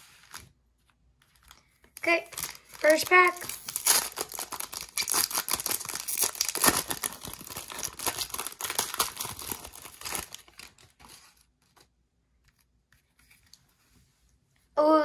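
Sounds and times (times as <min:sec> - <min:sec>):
foil wrapper crinkling and tearing: 0:01.4 - 0:11.8.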